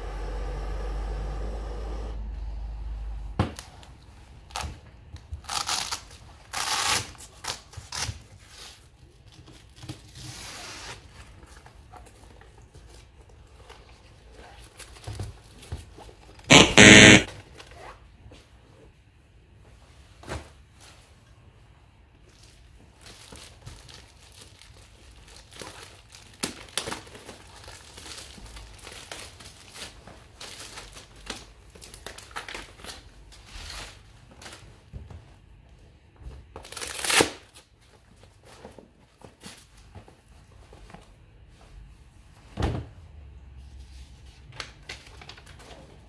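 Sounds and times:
hook-and-loop closure ripping open: 4.5s - 8.2s, 36.6s - 37.6s
foil crinkling and rustling: 22.3s - 34.9s, 36.6s - 40.9s.

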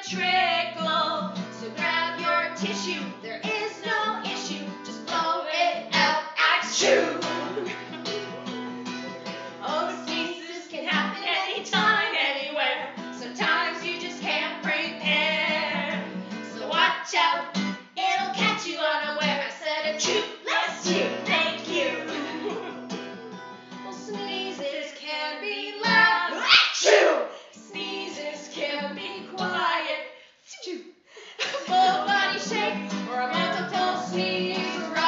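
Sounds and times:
woman singing: 0.0s - 8.2s, 9.6s - 22.7s, 23.7s - 30.8s, 31.4s - 35.0s
acoustic guitar strumming: 0.0s - 12.2s, 12.8s - 24.6s, 31.7s - 35.0s.

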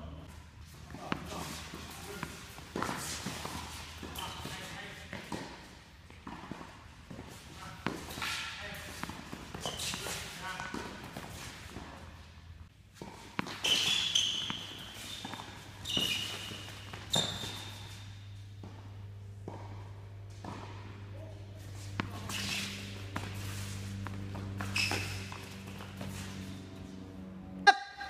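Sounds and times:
shoes squeaking on court: 0.2s - 12.2s, 12.9s - 27.6s
steady low hum: 16.4s - 27.7s.

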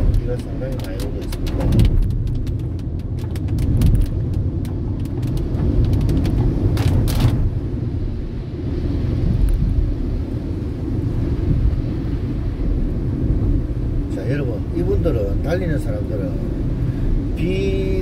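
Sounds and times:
raindrops ticking on glass: 0.0s - 7.2s
tyres and engine rumbling: 0.0s - 7.8s.

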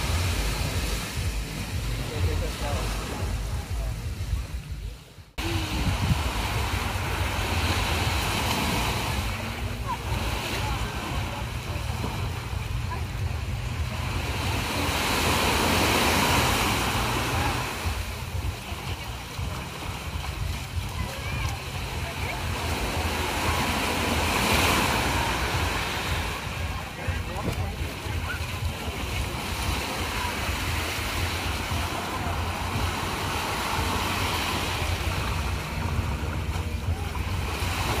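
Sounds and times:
small waves breaking on shore: 0.0s - 38.0s
surf washing up sand: 0.0s - 38.0s
wind rumble on microphone: 0.0s - 38.0s.

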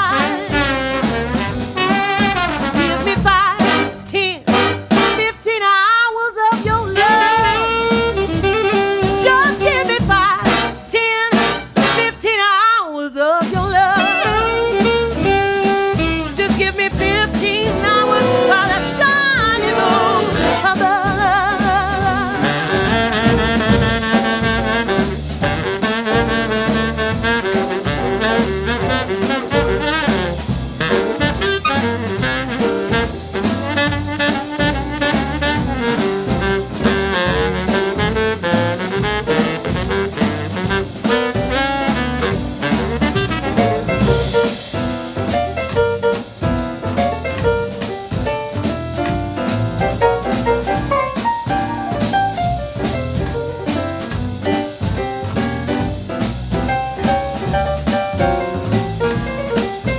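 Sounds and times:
saxophones and brass playing: 0.0s - 5.4s, 6.8s - 12.2s, 13.9s - 44.7s
drums and bass: 0.0s - 5.8s, 6.4s - 12.6s, 13.2s - 59.9s
woman singing with vibrato: 3.0s - 4.5s, 5.2s - 7.7s, 9.1s - 11.4s, 12.0s - 14.5s, 16.4s - 22.7s.

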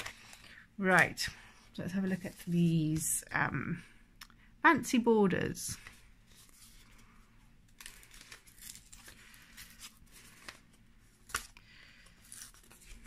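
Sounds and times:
paper packaging rustling and tearing: 0.0s - 0.6s, 5.8s - 13.0s.

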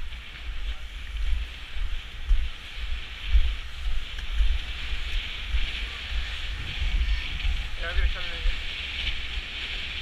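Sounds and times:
skate wheels rolling on asphalt: 0.0s - 10.0s
wind buffeting microphone: 0.0s - 10.0s.

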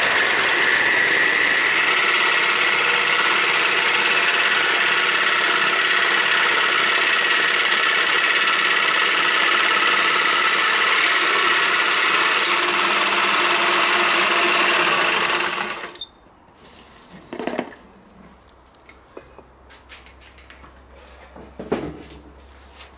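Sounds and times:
jigsaw cutting acrylic sheet: 0.0s - 16.0s.

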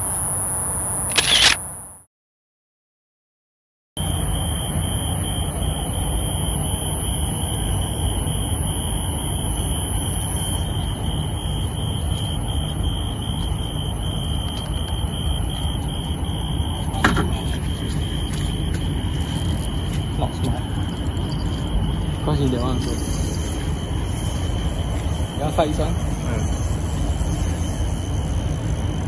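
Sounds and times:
constant high-pitched whine: 0.0s - 2.0s, 4.0s - 29.0s
low rumble: 9.9s - 29.0s.

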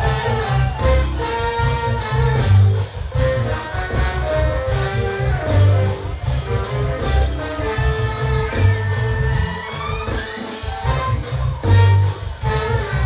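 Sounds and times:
bass and drum groove: 0.0s - 13.0s
horn section playing: 0.0s - 13.0s.

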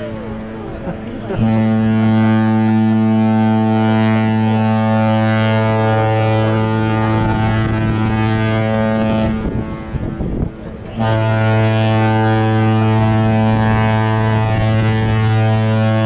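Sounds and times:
ship's horn deep blast: 0.0s - 16.0s.

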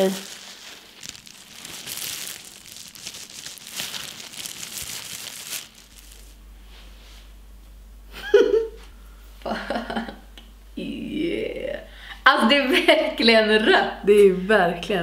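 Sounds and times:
plastic gloves crinkling: 0.0s - 6.4s.

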